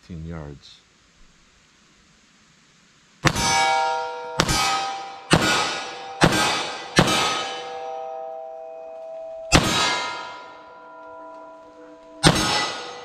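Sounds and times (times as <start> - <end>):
pistol shots: 3.2 - 3.7, 4.4 - 7.8, 9.5 - 10.2, 12.2 - 13.0
metallic ring: 3.3 - 13.0.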